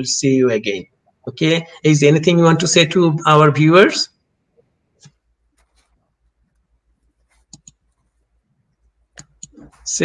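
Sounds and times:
soft clicks: 4.6 - 8.1, 9.1 - 9.9.

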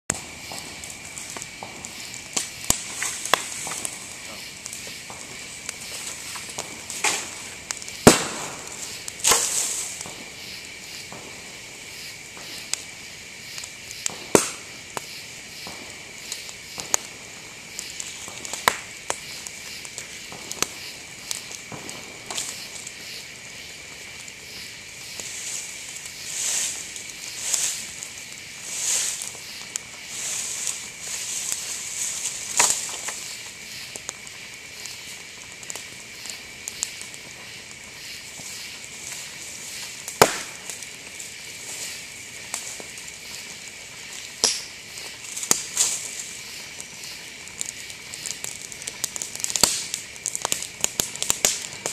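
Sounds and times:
bamboo fire crackling: 0.0 - 51.9
bamboo stalks popping: 0.1 - 10.3, 39.1 - 40.9, 44.2 - 51.9.

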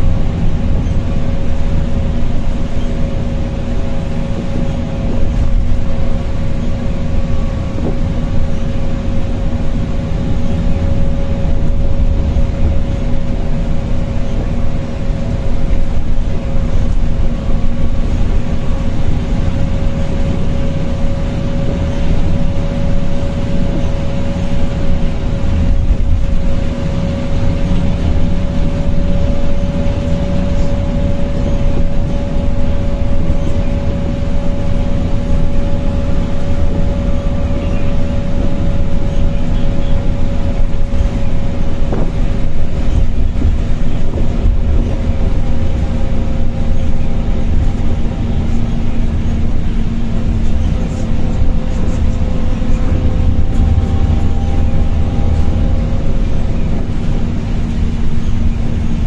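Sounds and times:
bus engine and road rumble: 0.0 - 59.0.

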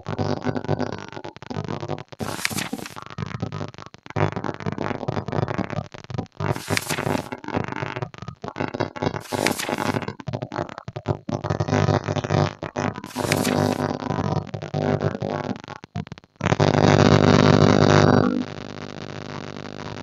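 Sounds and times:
papery page-turn swish: 2.2 - 3.0, 6.5 - 7.3, 9.2 - 10.0, 13.1 - 13.9.

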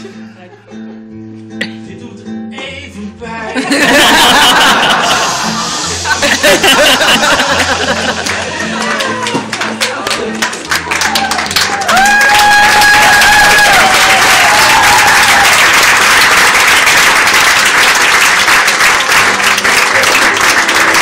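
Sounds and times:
long held cheer: 3.7 - 16.8
audience applauding: 3.9 - 21.0.

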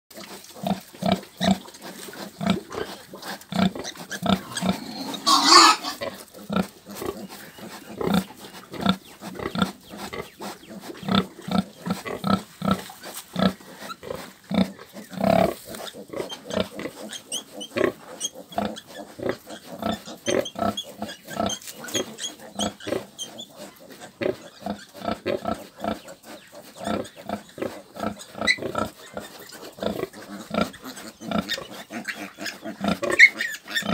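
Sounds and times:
sow grunting: 0.6 - 26.1
piglet squealing: 3.9 - 6.0, 21.4 - 23.6, 30.4 - 33.9.

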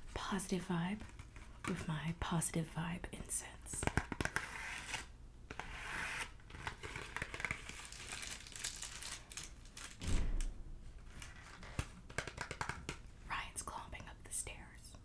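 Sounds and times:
wrapping crinkling and tearing: 6.4 - 10.1.

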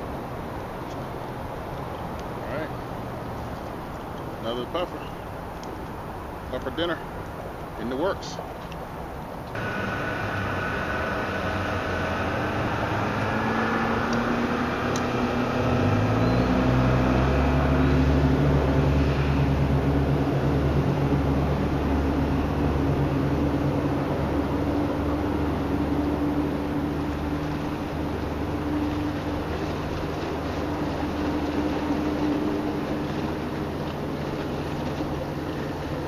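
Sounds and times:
motorboat engine running: 9.5 - 36.0.

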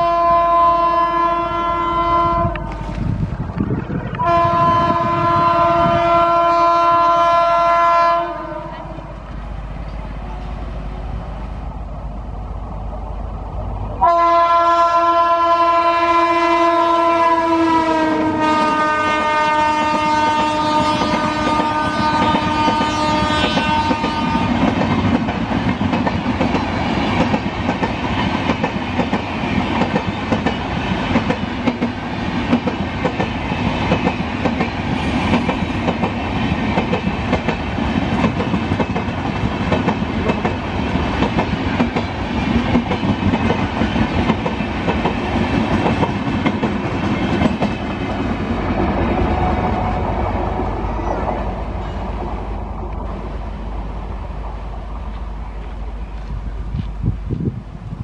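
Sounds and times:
train horn blast: 0.0 - 3.0, 4.2 - 9.2, 14.0 - 24.8
train coaches rumbling and clacking: 0.0 - 58.0.

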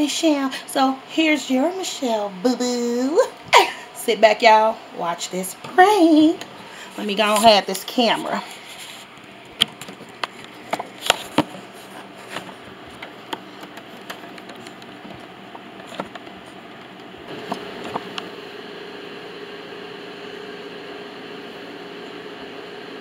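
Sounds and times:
machine hum: 5.6 - 23.0.

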